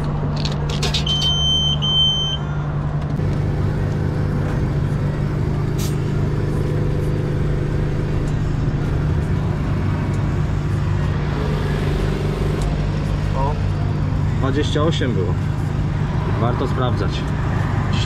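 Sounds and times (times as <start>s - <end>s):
traffic noise: 0.0s - 18.0s
short electronic beeps: 1.0s - 2.5s.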